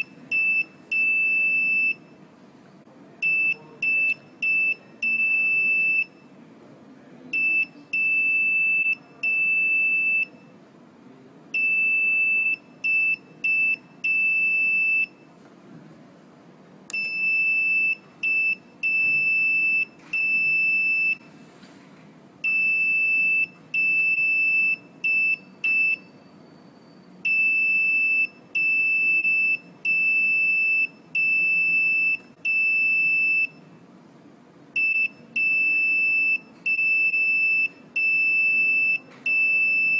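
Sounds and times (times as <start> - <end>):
buzzer beeping morse code: 17.0 - 21.2, 22.4 - 26.1, 27.3 - 33.6, 34.8 - 39.9.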